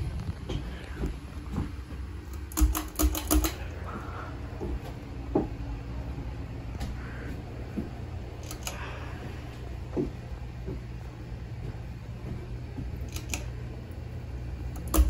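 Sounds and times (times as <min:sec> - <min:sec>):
ceiling fan humming: 0:00.0 - 0:15.0
sharp clicks: 0:02.3 - 0:03.7, 0:08.4 - 0:08.8, 0:13.0 - 0:13.5.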